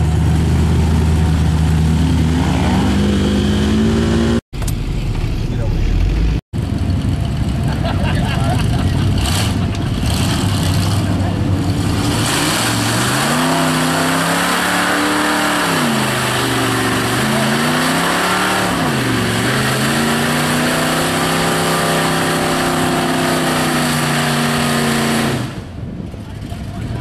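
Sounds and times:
truck engine revving: 0.0 - 27.0
tires spraying mud: 8.1 - 25.7.

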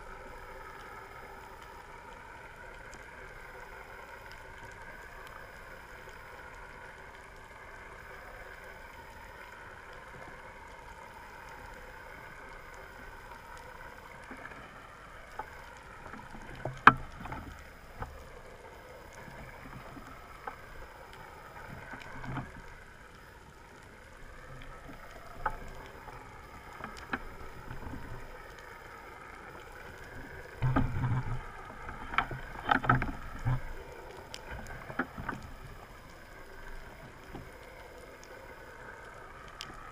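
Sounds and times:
boat engine droning underwater: 0.0 - 39.9.

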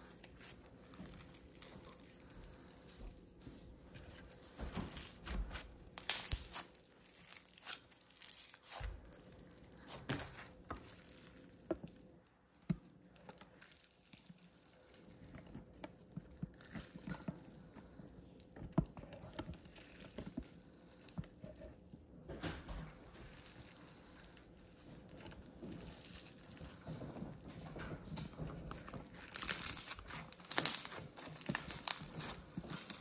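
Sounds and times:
slime squishing: 0.0 - 33.0
slime popping and crackling: 4.3 - 12.0, 12.8 - 21.2, 23.2 - 27.4, 28.6 - 33.0.

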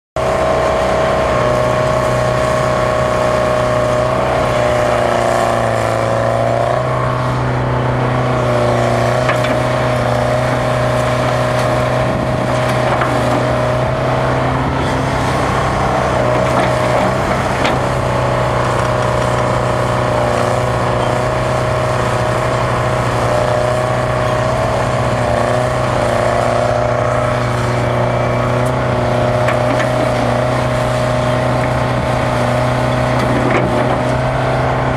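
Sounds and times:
diesel engine running: 0.2 - 34.9.

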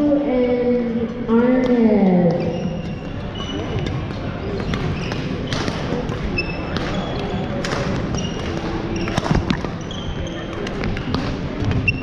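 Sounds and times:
murmur of voices: 0.0 - 12.0
sneakers squeaking on floor: 1.6 - 12.0
racket hitting shuttlecock: 3.8 - 9.8.

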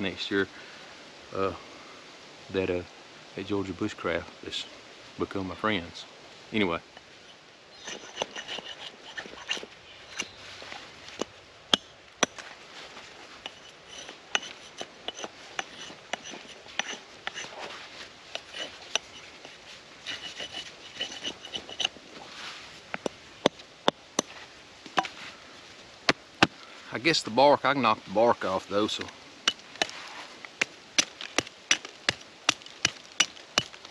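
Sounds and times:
hatchet shaving wood: 7.8 - 12.4, 13.4 - 22.2, 29.4 - 33.9
hatchet knocking wood: 31.0 - 33.8.

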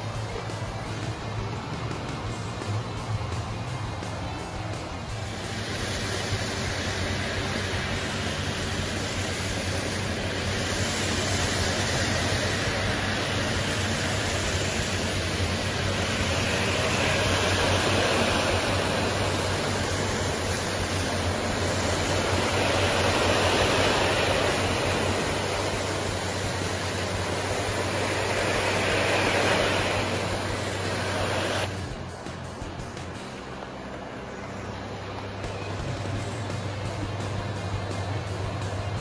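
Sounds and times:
low machine hum: 0.0 - 39.0
foam spray hissing: 2.9 - 31.9.

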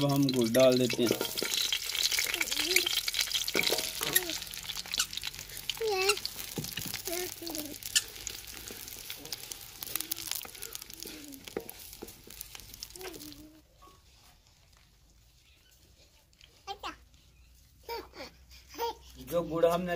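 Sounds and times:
spatula scraping metal pan: 0.0 - 12.6
sugar sizzling in hot ghee: 0.0 - 15.6.

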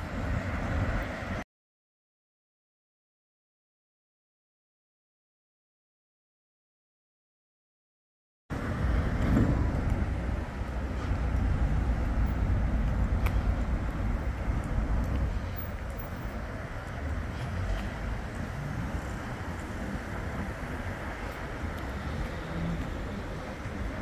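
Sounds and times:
tram wheels rumbling on rails: 8.5 - 24.0.

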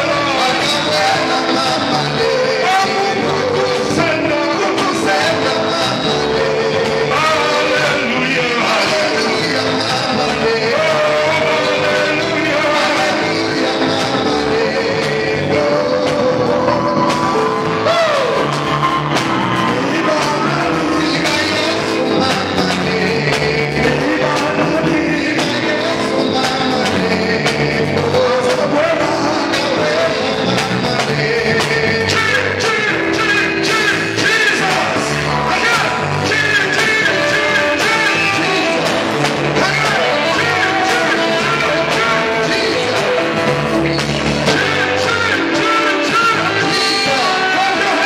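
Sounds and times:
backing singers: 0.0 - 48.0
live band music: 0.0 - 48.0
man singing into microphone: 0.0 - 48.0.

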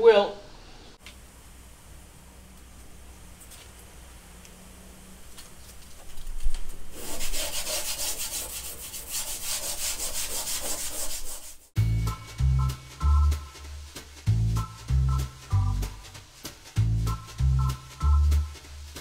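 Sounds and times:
sandpaper rasping on wood: 6.9 - 11.8
music with bass beat: 11.8 - 19.0.

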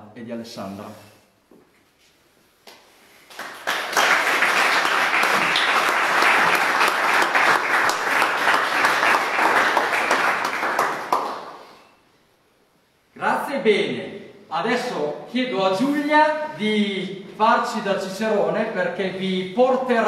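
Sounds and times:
people applauding: 3.2 - 11.9.

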